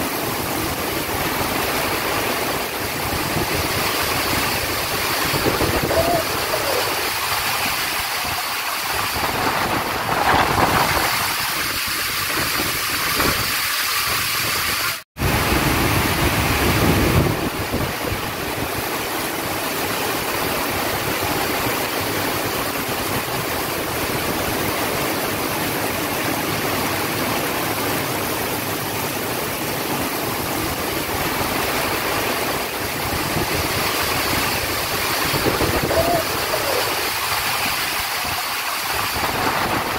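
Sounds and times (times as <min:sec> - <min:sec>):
heavy rain pouring: 0:00.0 - 0:39.9.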